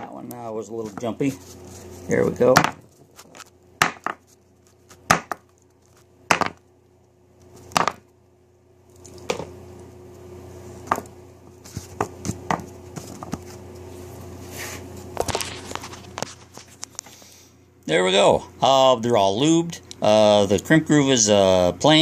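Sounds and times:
bullets knocking on tabletop: 0:06.3 - 0:06.6.

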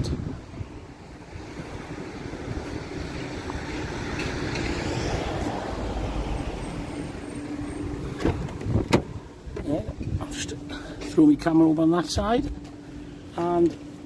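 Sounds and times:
vehicle passing by: 0:00.9 - 0:09.3.

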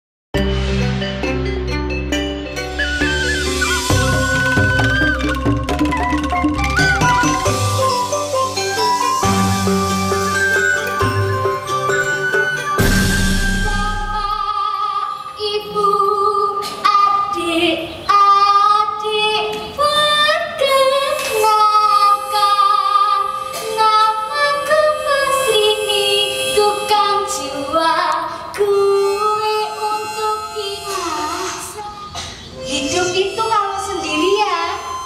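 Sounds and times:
woman singing slow melody: 0:14.1 - 0:31.9.

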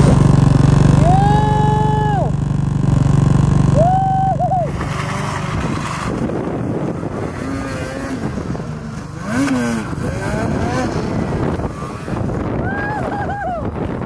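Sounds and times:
snowmobile engines revving: 0:00.0 - 0:14.0.

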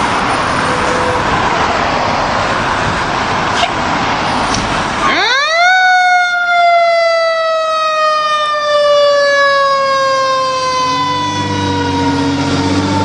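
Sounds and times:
road noise: 0:00.0 - 0:13.0
truck engine rumble: 0:00.0 - 0:13.0
fire truck siren winding down: 0:04.8 - 0:13.0.

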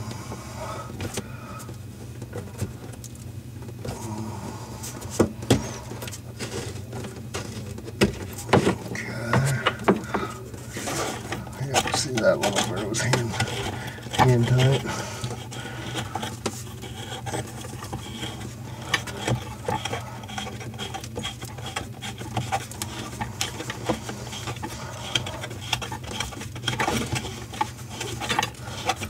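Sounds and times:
plastic nut clicking and scraping: 0:10.8 - 0:29.0.

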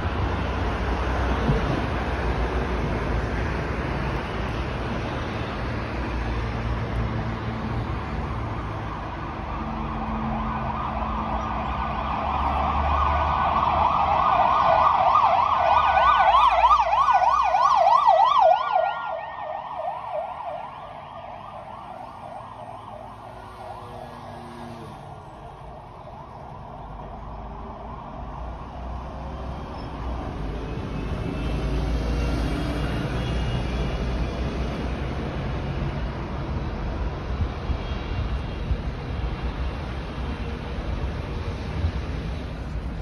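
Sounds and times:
street traffic rumble: 0:00.0 - 0:43.0
emergency siren yelping: 0:08.9 - 0:28.6.

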